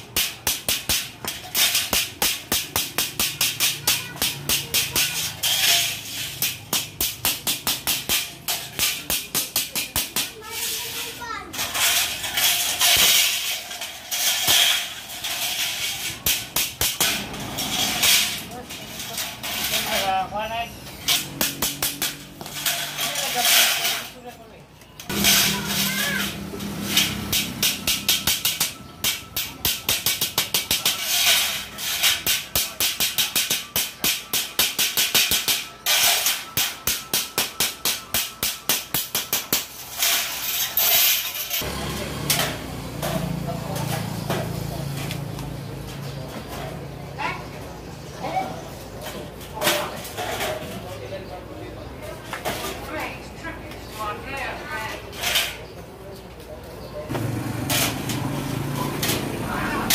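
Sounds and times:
sharp metal knocks: 0.0 - 10.4, 21.0 - 24.0, 25.1 - 41.6
metal channels clattering and scraping: 0.0 - 47.6, 48.8 - 51.3, 57.1 - 59.9.

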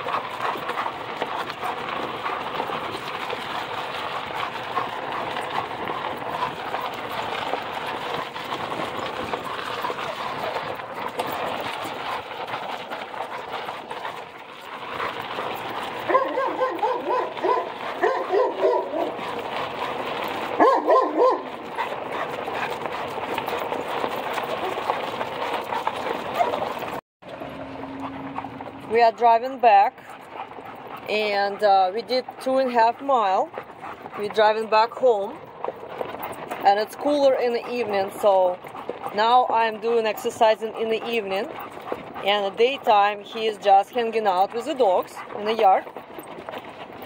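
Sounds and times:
dog barking: 16.1 - 19.2, 20.6 - 22.3, 26.3 - 26.6.

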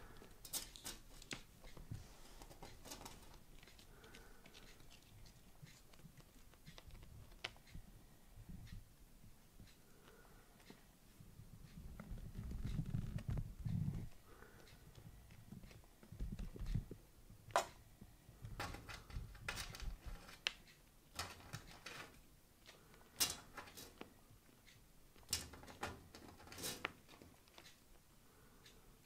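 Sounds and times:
kitten paws tapping wooden floor: 0.0 - 7.9, 11.8 - 17.7.

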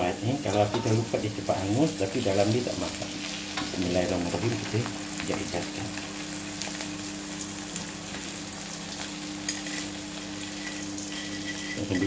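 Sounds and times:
hot oil sizzling in a wok: 0.0 - 12.0
small crackles and pops: 4.5 - 8.3.

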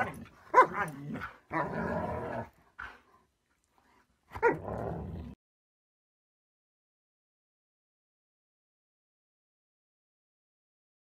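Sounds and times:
dog barking: 0.0 - 1.6, 4.4 - 4.6
dogs growling: 0.0 - 3.0, 4.4 - 5.4.

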